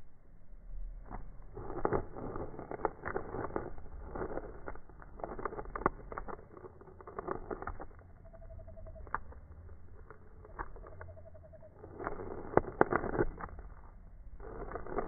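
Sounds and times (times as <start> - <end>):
frog squeaky chirps: 8.0 - 9.3, 10.4 - 12.0.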